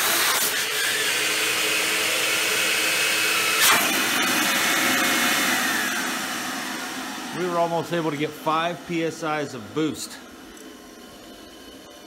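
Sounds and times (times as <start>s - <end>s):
blower air rush: 3.4s - 10.6s.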